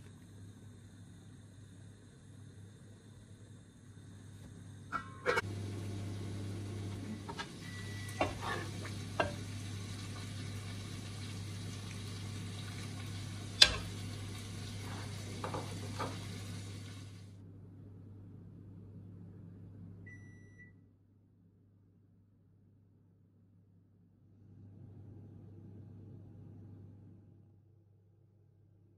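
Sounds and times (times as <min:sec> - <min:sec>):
steady low hum: 0:00.0 - 0:20.2
curry sizzling in a frying pan: 0:05.2 - 0:17.2.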